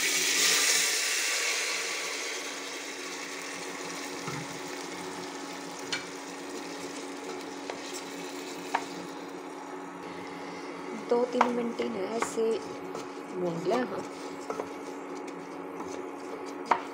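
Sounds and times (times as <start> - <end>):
rice sizzling in hot oil: 0.0 - 10.0
steady hum: 0.0 - 16.9.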